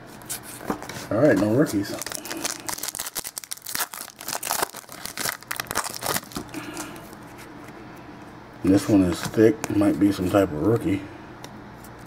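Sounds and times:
foil wrapper tearing and crinkling: 1.8s - 7.0s.

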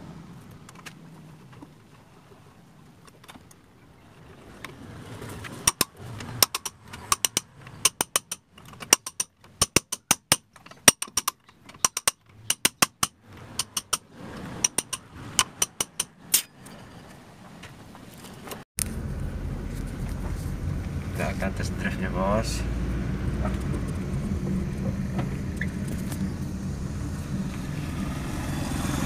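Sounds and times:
ratchet wrench clicking: 5.7s - 14.0s, 14.6s - 16.5s.

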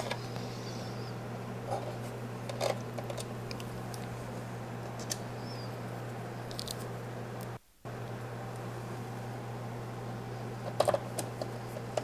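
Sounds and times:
steady low hum: 0.0s - 12.0s
clicks and rustles of handling parts: 1.7s - 4.1s, 10.6s - 12.0s.

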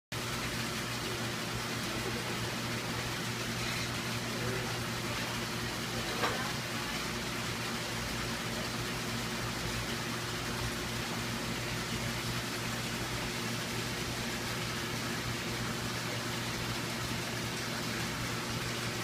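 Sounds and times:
water circulating: 0.1s - 19.0s
low electrical hum: 0.2s - 19.0s.

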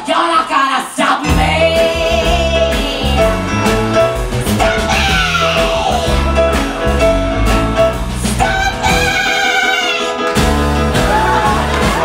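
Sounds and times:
woman singing: 0.0s - 3.8s, 4.6s - 6.3s, 8.2s - 12.0s
live band playing: 0.0s - 12.0s.

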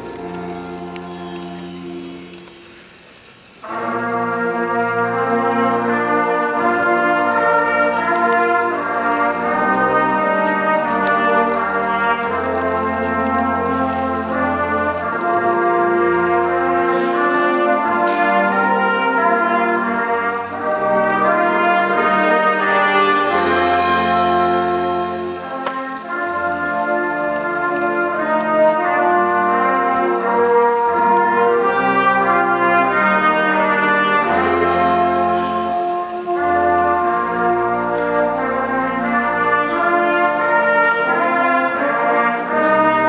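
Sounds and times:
concert band brass chords: 0.0s - 43.0s.

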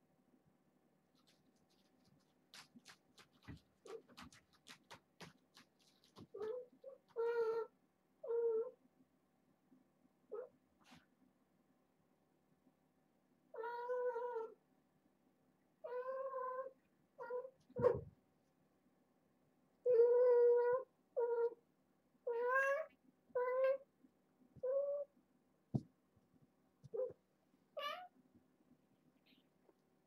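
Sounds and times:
soft thump: 25.7s - 25.9s.

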